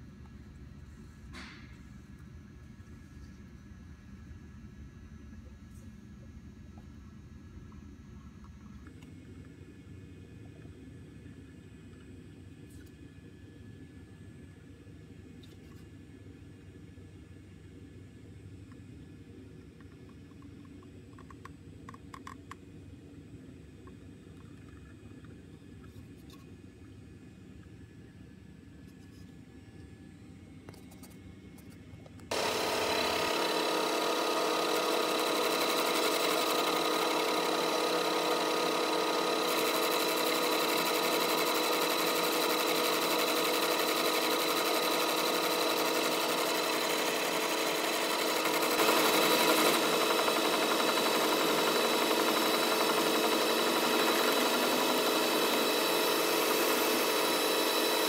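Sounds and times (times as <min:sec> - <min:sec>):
faint hum: 0:00.0 - 0:33.3
metal lathe running: 0:32.3 - 0:58.0.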